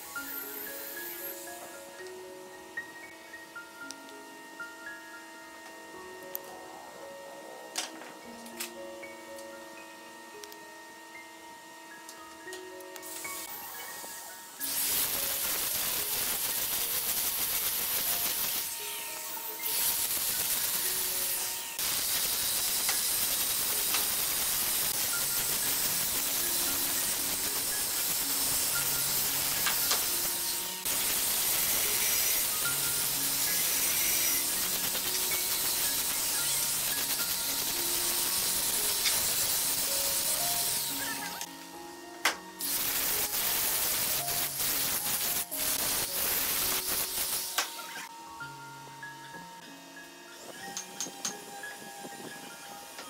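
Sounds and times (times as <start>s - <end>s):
power grinder sanding wood: 17.8s - 41.4s.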